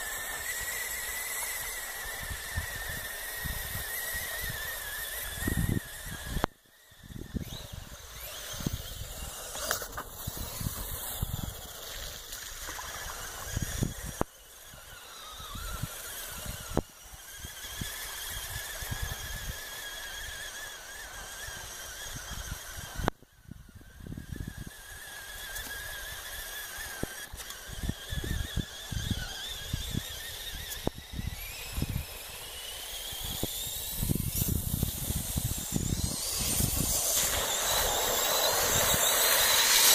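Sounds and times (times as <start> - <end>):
electric motor whining: 0.0 - 39.9
wind buffeting microphone: 2.2 - 9.4, 33.0 - 39.9.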